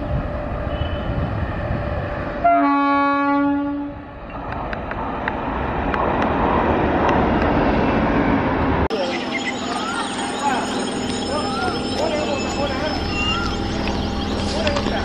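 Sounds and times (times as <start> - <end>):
train rushing past: 0.0 - 15.0
train horn blast: 2.4 - 4.0.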